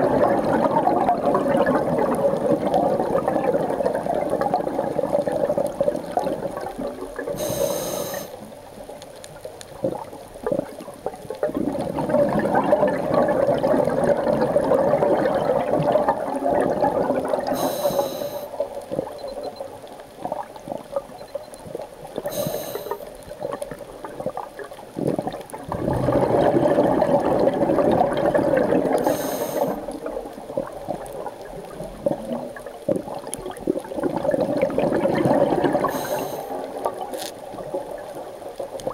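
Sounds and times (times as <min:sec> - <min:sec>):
exhale bubbling underwater: 0:00.0 - 0:08.6, 0:09.7 - 0:38.9
regulator inhale hiss: 0:07.4 - 0:08.4, 0:17.5 - 0:18.6, 0:22.3 - 0:23.1, 0:29.0 - 0:29.9, 0:35.9 - 0:36.7.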